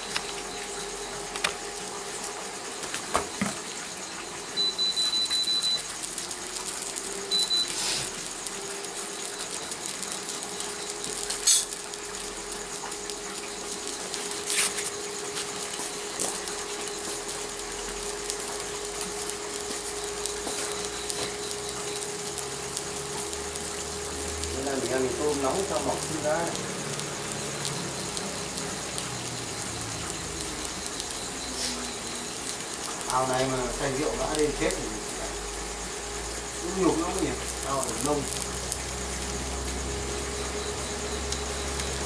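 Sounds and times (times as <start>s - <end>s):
cooling fan humming: 0.0s - 42.0s
high beep: 4.6s - 5.9s, 7.3s - 7.8s.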